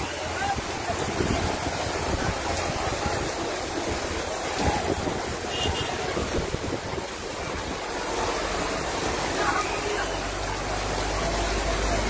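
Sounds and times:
floodwater running: 0.0s - 12.0s
heavy rain: 0.0s - 12.0s
wind rumbling on microphone: 0.6s - 9.3s.

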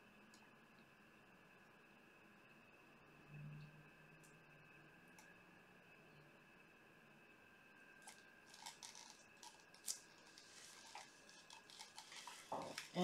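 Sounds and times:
plastic cups clicking and tapping: 8.0s - 13.0s.

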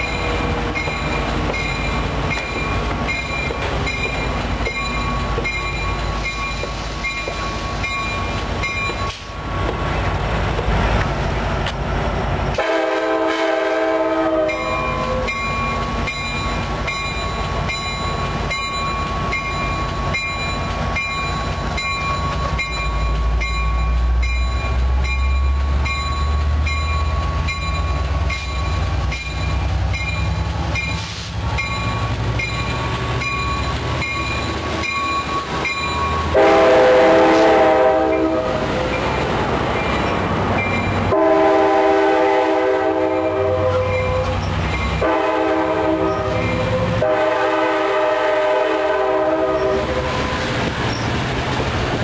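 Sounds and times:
locomotive bell ringing: 0.0s - 9.4s, 14.4s - 48.1s
diesel locomotive engine rumble: 0.0s - 52.0s
train air horn blasts: 12.6s - 15.3s, 36.3s - 38.6s, 41.1s - 44.4s, 45.0s - 50.4s.

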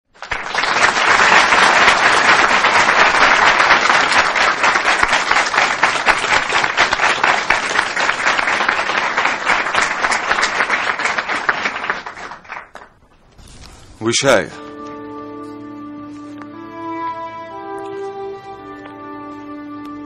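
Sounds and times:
audience applauding: 0.1s - 13.1s.

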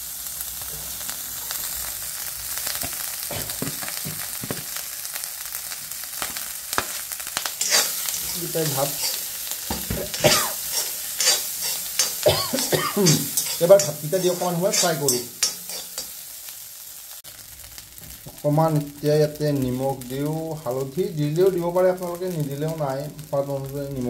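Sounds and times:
rice sizzling in hot oil: 0.0s - 24.0s
metal spoon scraping a pan: 6.8s - 16.2s.

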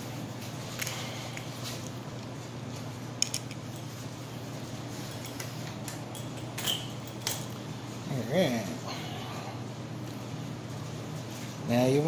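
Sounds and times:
steady low hum: 0.0s - 12.0s
metal bike parts clicking: 3.2s - 3.6s.

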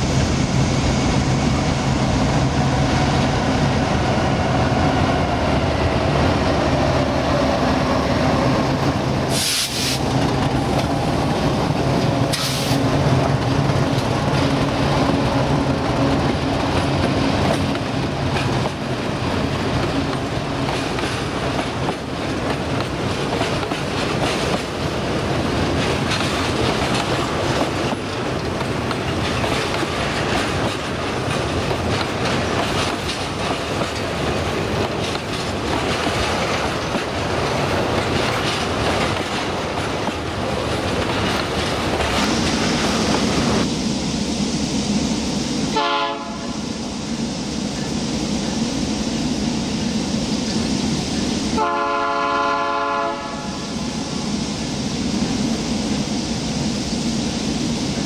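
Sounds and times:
diesel locomotive engine drone: 0.0s - 58.0s
train wheels clickety-clack: 1.4s - 43.8s.

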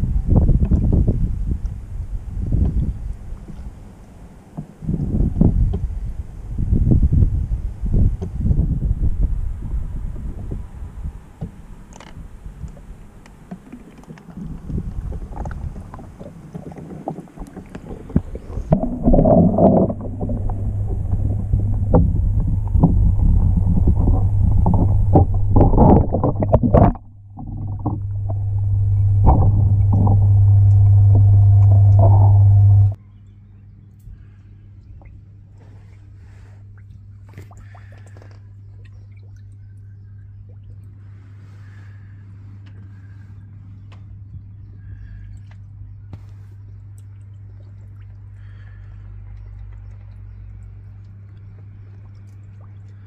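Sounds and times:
underwater water movement: 0.0s - 33.0s, 35.0s - 53.0s
steady low hum: 0.0s - 53.0s
short knocks underwater: 4.4s - 6.0s, 8.0s - 8.6s, 11.4s - 33.0s.

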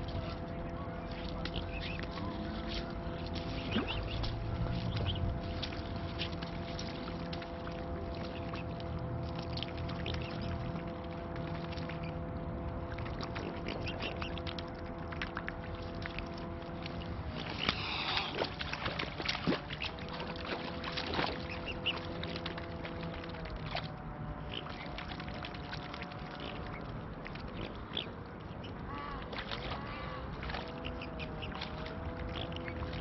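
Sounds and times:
waterfowl calls: 0.0s - 6.8s, 7.6s - 8.8s, 9.9s - 12.2s, 13.3s - 14.6s, 16.8s - 22.5s, 24.4s - 33.0s
low engine-like hum: 0.0s - 33.0s
swans splashing in water: 0.0s - 33.0s.

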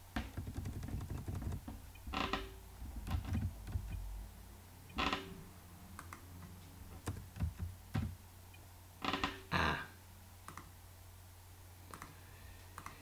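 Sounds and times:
keyboard keys clicking: 0.2s - 1.7s, 3.1s - 4.0s, 7.0s - 8.2s.

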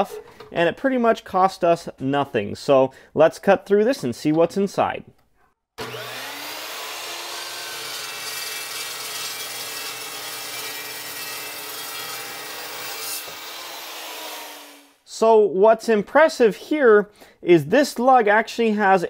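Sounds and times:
cold saw cutting metal: 5.8s - 15.0s.

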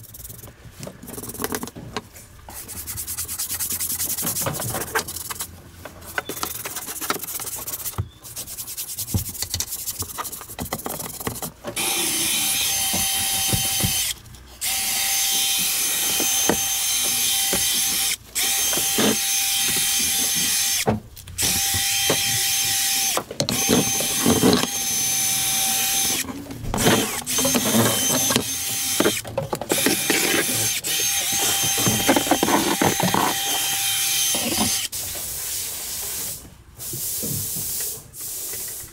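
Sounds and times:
hand scrubbing: 2.5s - 5.6s
cordless drill whine: 11.8s - 20.8s, 21.4s - 34.9s.

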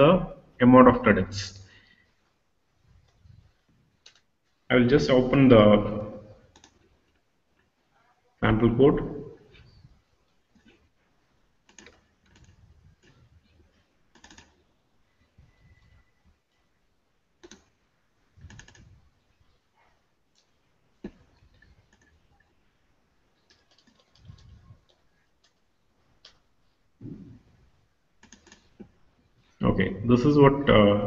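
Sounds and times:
keyboard and mouse clicks: 4.0s - 4.3s, 6.5s - 6.9s, 11.6s - 14.6s, 17.4s - 17.7s, 18.4s - 19.0s, 20.3s - 22.5s, 23.4s - 25.6s, 28.2s - 29.0s.

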